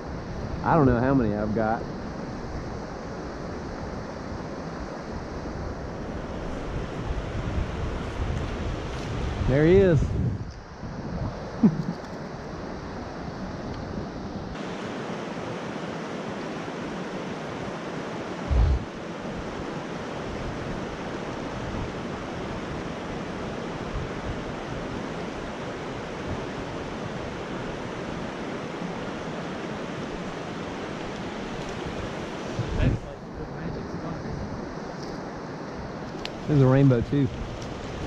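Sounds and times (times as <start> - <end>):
stream rushing over rocks: 14.6 - 32.8
low thump: 18.5 - 18.8.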